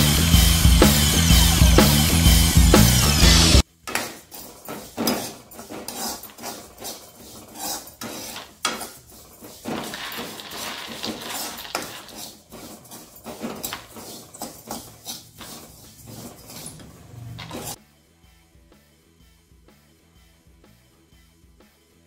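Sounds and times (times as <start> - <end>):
spatula scraping a metal pan: 3.9 - 17.8.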